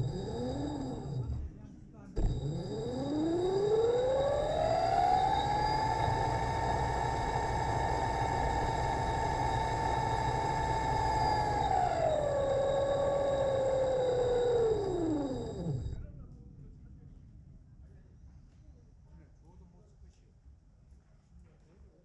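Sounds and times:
electric motor whining: 0.0s - 1.6s, 2.2s - 16.3s.

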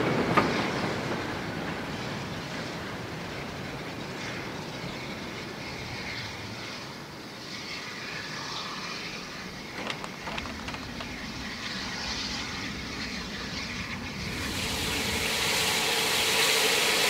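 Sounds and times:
signal mechanism clanking: 9.6s - 11.5s.

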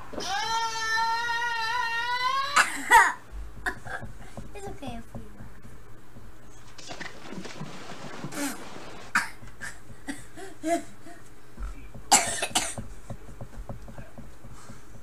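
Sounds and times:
person coughing: 9.1s - 11.2s, 12.1s - 12.8s.

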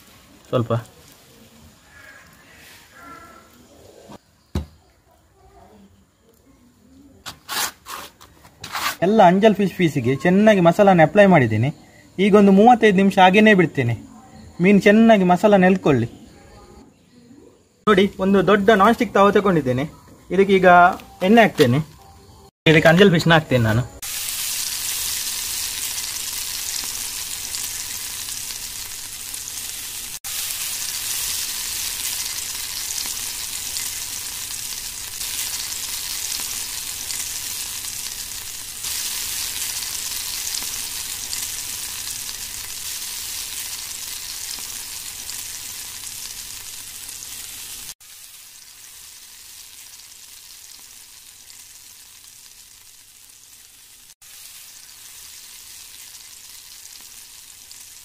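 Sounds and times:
fish sizzling in oil: 0.0s - 3.0s, 23.9s - 58.0s.

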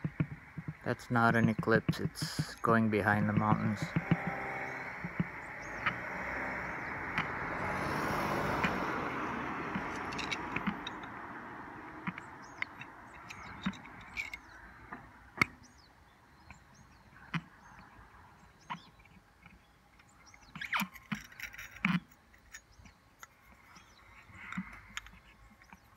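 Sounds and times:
sharp knocks: 0.0s - 6.2s
vehicle passing: 2.0s - 15.4s.

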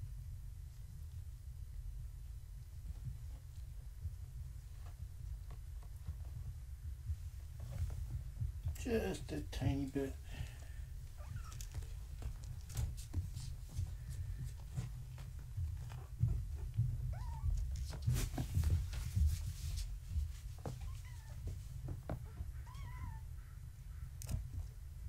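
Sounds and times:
kittens scampering on blankets: 0.7s - 25.0s
kittens mewing: 22.2s - 24.1s.

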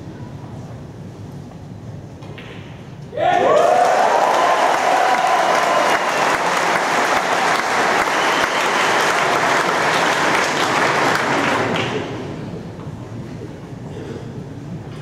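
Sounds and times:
audience applauding: 3.4s - 12.2s.

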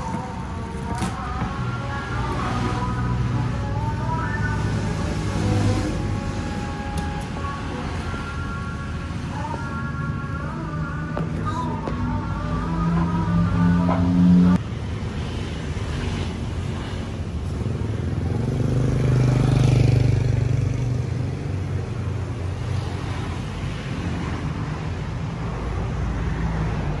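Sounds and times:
low street rumble: 0.0s - 27.0s
vehicle engine passing: 10.8s - 14.6s.

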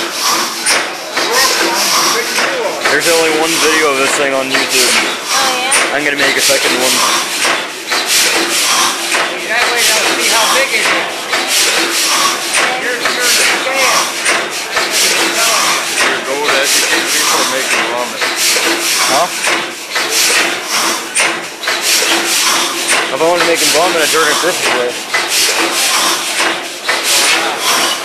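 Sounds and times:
compressor engine clattering: 0.0s - 28.0s.

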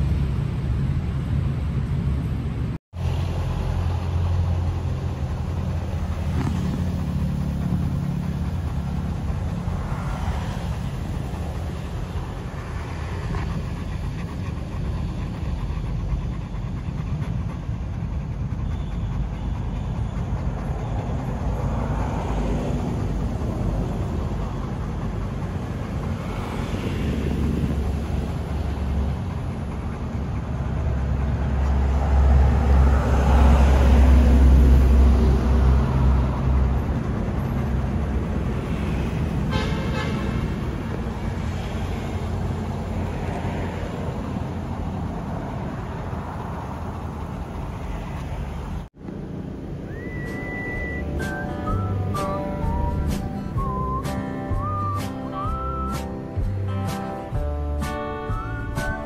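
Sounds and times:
road traffic rumble: 0.0s - 59.0s
vehicle passing: 0.0s - 59.0s
short horn tone: 39.5s - 40.3s.

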